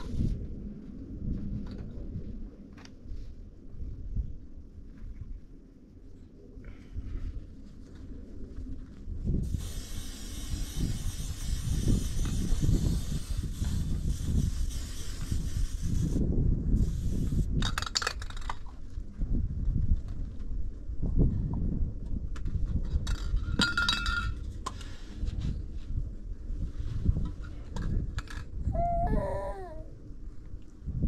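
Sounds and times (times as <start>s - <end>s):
spray-paint can hissing: 9.4s - 16.2s, 16.8s - 17.5s
spray can rattling when shaken: 9.5s - 16.2s.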